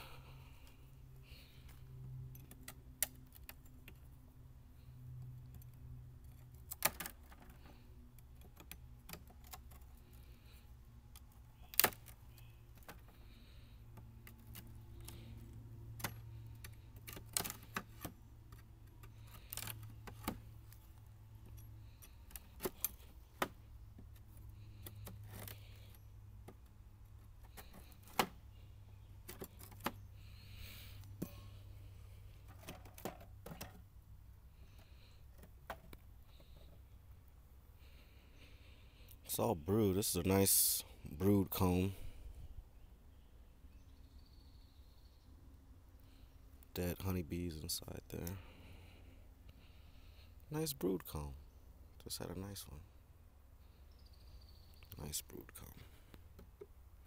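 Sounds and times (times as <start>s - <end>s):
faint low hum: 0.0s - 57.0s.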